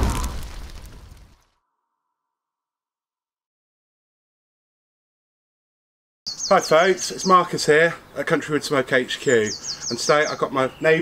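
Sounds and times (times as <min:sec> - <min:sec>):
deep rumbling explosion: 0:00.0 - 0:01.4.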